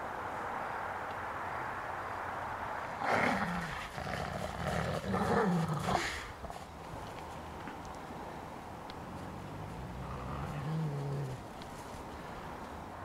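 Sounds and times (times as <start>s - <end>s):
wolf growling: 3.0s - 6.6s, 9.1s - 11.5s.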